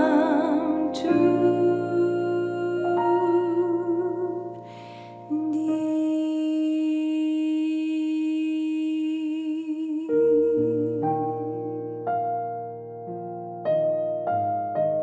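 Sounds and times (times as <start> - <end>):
digital piano chords: 0.0 - 7.5, 9.9 - 15.0
short breath: 4.6 - 5.3
woman humming: 5.3 - 11.4.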